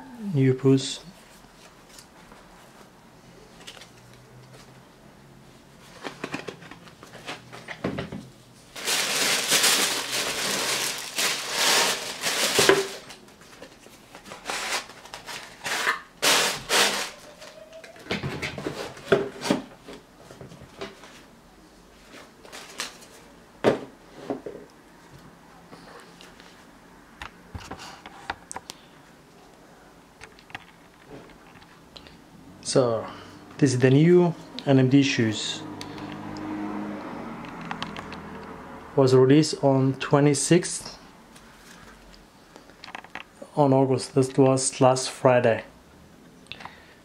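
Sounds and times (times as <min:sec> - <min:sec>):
tissue paper crinkling and rustling: 0:08.7 - 0:17.6.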